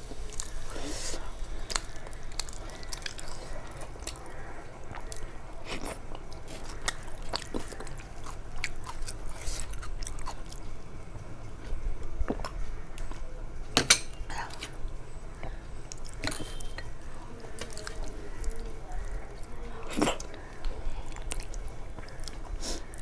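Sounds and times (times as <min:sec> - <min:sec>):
chewing and mouth smacks: 0:01.6 - 0:10.8, 0:15.9 - 0:16.9, 0:17.6 - 0:23.0.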